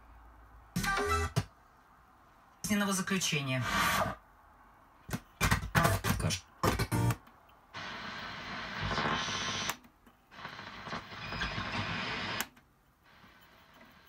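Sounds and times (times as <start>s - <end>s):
radio static hiss: 2.6s - 4.2s, 5.4s - 14.0s
chopped radio broadcast snatches: 5.1s - 7.2s, 7.8s - 9.8s.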